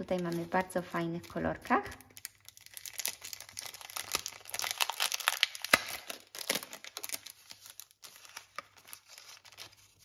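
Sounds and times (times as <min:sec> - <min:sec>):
plastic packaging crinkling: 0:00.0 - 0:10.0
sharp plastic crack: 0:02.8 - 0:07.2.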